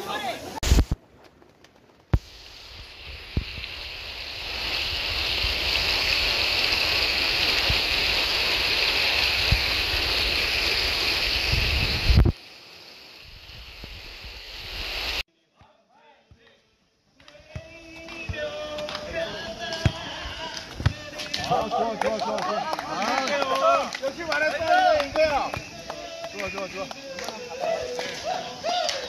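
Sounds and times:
stream rushing over rocks: 0:02.2 - 0:15.2.

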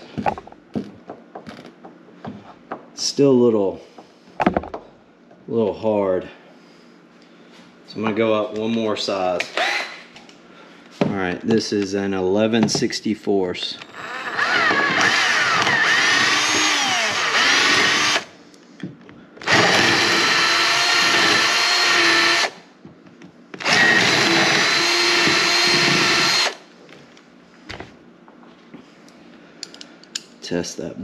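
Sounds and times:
cordless drill running: 0:09.6 - 0:09.9, 0:13.8 - 0:18.3, 0:19.4 - 0:22.6, 0:23.6 - 0:26.6.

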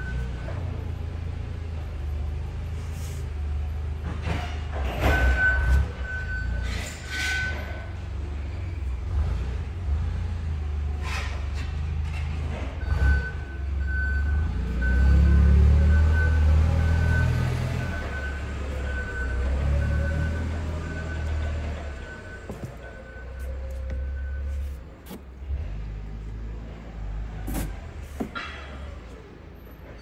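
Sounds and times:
reversing alarm beeps: 0:00.0 - 0:00.7, 0:05.0 - 0:07.6, 0:12.8 - 0:24.8
rustles and knocks: 0:27.5 - 0:28.9.

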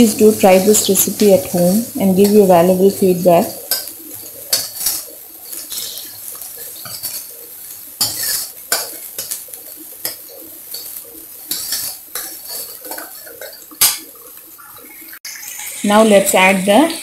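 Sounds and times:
garlic and onions frying: 0:00.0 - 0:17.0
ladle scraping metal pan: 0:08.0 - 0:09.0, 0:11.5 - 0:14.1.

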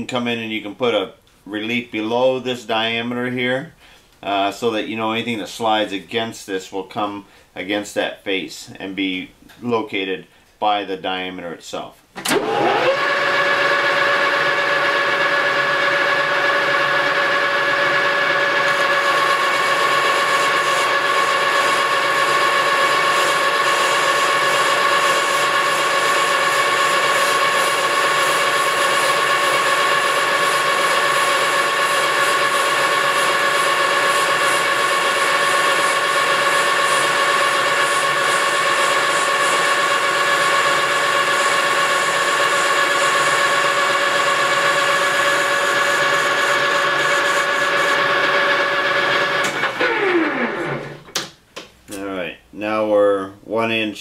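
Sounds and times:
lathe gear whine: 0:12.3 - 0:51.0.

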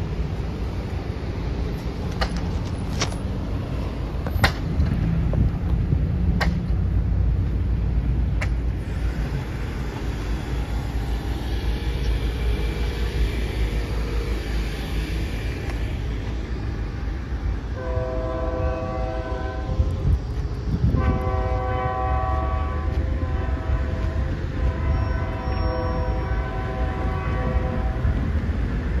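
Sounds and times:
steady low rumble: 0:00.0 - 0:24.9
locomotive horn blasts: 0:17.7 - 0:20.1, 0:20.9 - 0:28.2.

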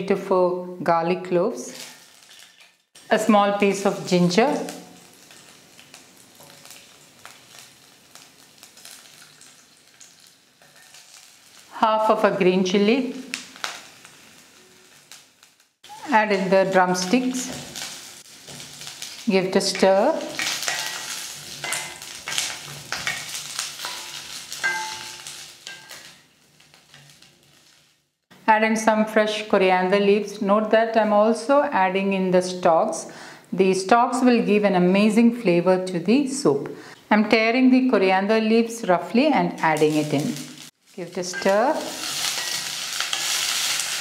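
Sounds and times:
ghee sizzling faintly: 0:01.6 - 0:28.0, 0:38.0 - 0:44.0
small crackles: 0:01.7 - 0:03.1, 0:04.5 - 0:11.8, 0:13.0 - 0:16.4, 0:17.1 - 0:28.1, 0:39.7 - 0:44.0
steel pan ringing: 0:20.4 - 0:26.1.

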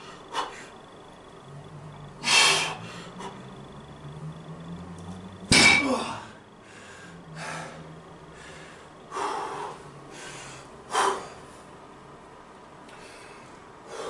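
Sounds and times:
hard exhale: 0:02.2 - 0:03.4, 0:12.9 - 0:14.0.

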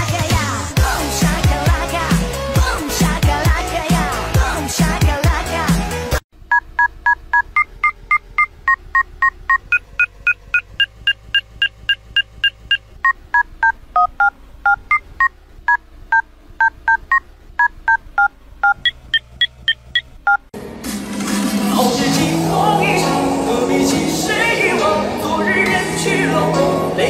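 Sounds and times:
music: 0:00.0 - 0:06.2, 0:20.6 - 0:27.0
phone dial-pad beeps: 0:06.5 - 0:20.4.

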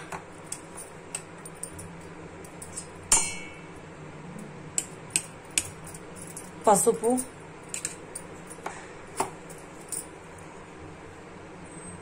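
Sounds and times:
metal spoon clinking on steel: 0:00.0 - 0:03.9, 0:04.7 - 0:10.1.

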